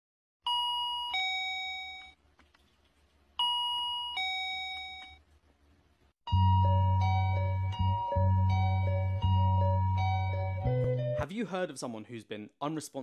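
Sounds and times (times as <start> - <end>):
two-note doorbell chime: 0.5 - 2.1, 3.4 - 5.2, 6.3 - 11.2.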